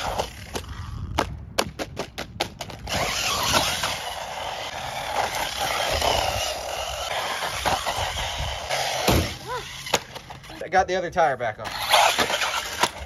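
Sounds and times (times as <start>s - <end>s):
toy truck motor and tyres: 0.0s - 1.1s, 2.6s - 10.6s, 11.6s - 13.0s
toy truck tumbling knocks: 1.2s - 10.4s.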